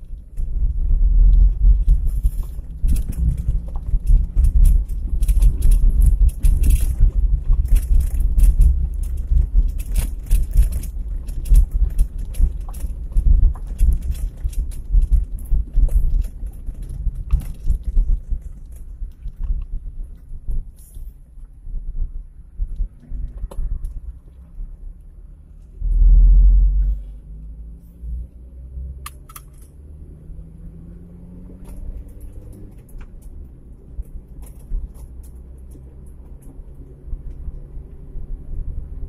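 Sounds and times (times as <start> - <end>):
clicks and rattles: 0.0 - 21.1, 29.0 - 29.8, 31.6 - 38.0
car engine and tyre drone: 0.0 - 39.0
tyres rumbling over gravel: 0.5 - 19.6
loud low rumble: 21.6 - 29.2.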